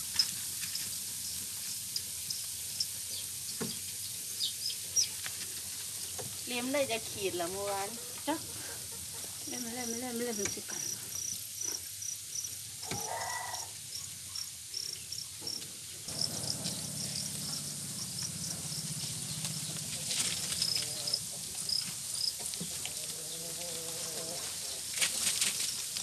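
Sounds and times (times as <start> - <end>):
crickets chirping: 0.0 - 3.7, 4.3 - 22.6, 23.2 - 26.0.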